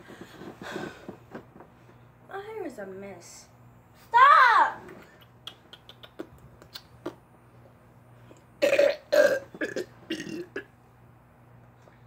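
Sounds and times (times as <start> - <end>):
girl burping: 8.6 - 10.7.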